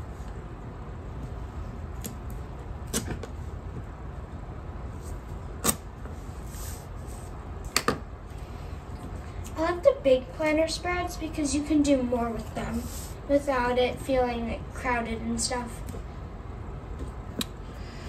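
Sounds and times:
low room hum: 0.0 - 18.0.

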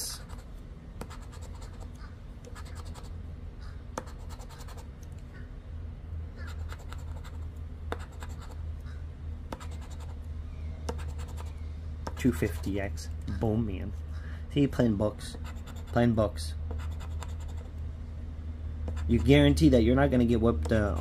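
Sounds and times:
chip scraping scratch ticket: 0.0 - 3.1, 4.0 - 4.9, 6.4 - 8.6, 9.5 - 10.2, 10.9 - 12.8, 15.3 - 16.1, 16.7 - 17.7, 18.9 - 19.6
steady low hum: 0.0 - 21.0.

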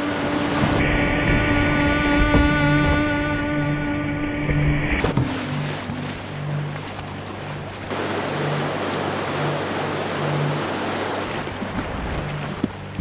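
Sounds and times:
river rapids roaring: 0.0 - 2.4, 5.0 - 13.0.

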